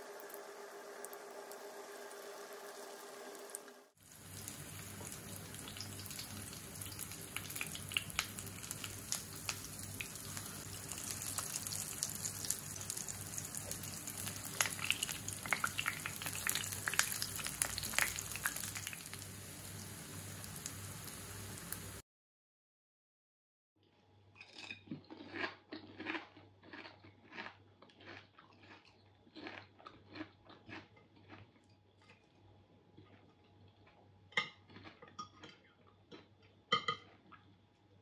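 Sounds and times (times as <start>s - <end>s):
oil sizzling in a frying pan: 0.0s - 22.0s
low steady hum: 4.1s - 22.0s.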